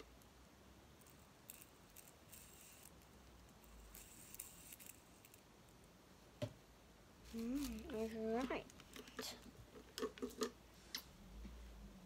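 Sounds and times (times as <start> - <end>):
fidget spinner rustles and clicks: 1.0 - 5.5, 7.3 - 10.6.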